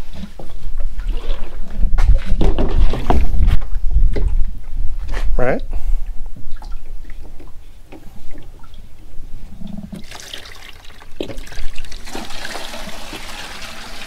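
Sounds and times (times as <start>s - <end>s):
water splashing into plastic sink: 10.0s - 14.0s.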